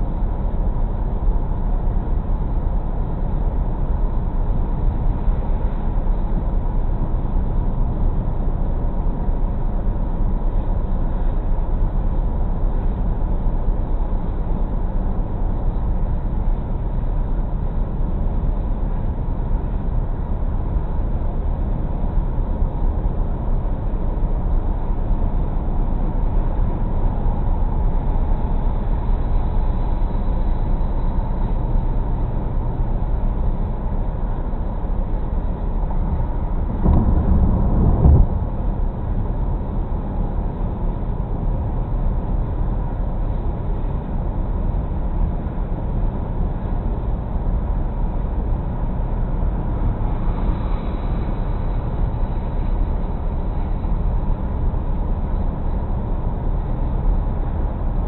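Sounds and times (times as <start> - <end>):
road and tyre noise: 0.0 - 58.0
car engine hum: 22.0 - 54.7
low rumble: 34.6 - 41.7.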